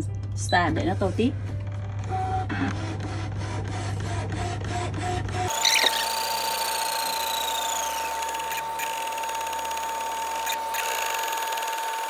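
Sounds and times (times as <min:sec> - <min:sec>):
cutting machine motors whining: 0:04.3 - 0:12.0.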